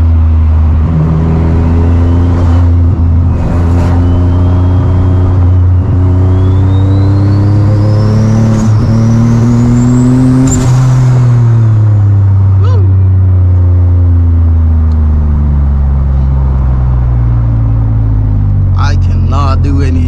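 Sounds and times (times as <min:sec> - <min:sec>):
car engine under way: 0:00.0 - 0:20.0.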